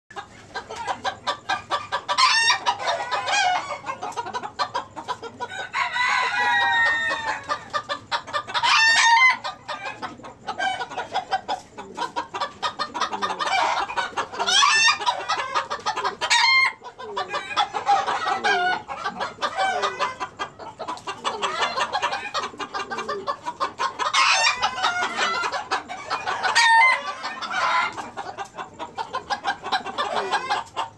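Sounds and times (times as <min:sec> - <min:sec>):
chickens clucking: 0:00.1 - 0:30.9
sharp chicken calls: 0:00.1 - 0:30.9
rooster crowing: 0:05.5 - 0:07.6, 0:26.1 - 0:28.0.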